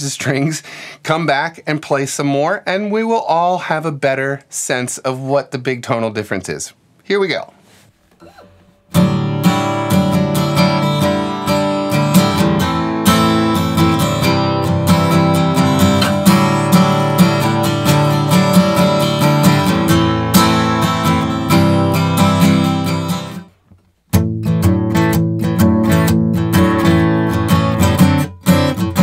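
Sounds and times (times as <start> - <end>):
steel-string acoustic guitar strummed: 8.2 - 29.0.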